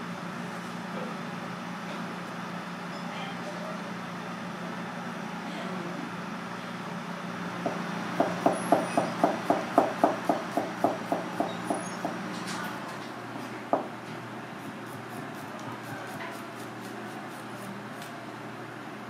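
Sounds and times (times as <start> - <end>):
knife chopping on plastic board: 7.7 - 12.2.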